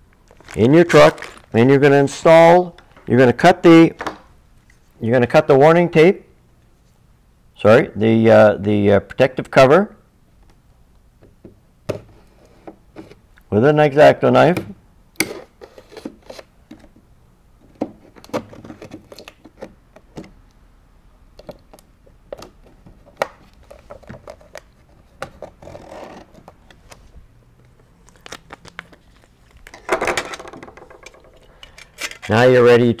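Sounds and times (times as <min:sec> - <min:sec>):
paper rustle: 0:00.3 - 0:01.6.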